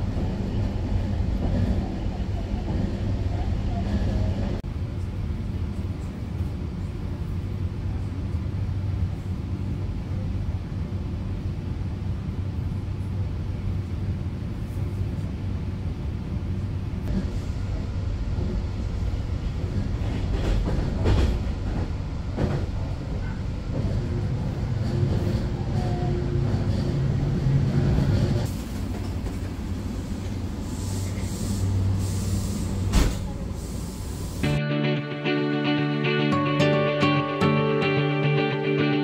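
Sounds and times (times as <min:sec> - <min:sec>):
train rumbling on rails: 0:00.0 - 0:34.6
train clattering: 0:17.0 - 0:31.9.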